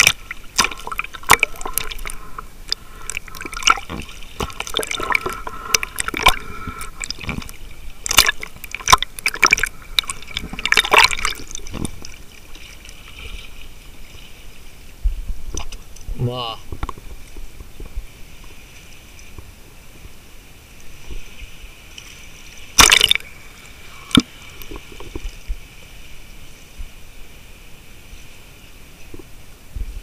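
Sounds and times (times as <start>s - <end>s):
sharp pops and crackles: 0.0s - 12.2s, 22.7s - 23.3s, 24.0s - 25.4s
seawater sloshing and bubbling: 0.0s - 19.5s, 20.9s - 26.2s.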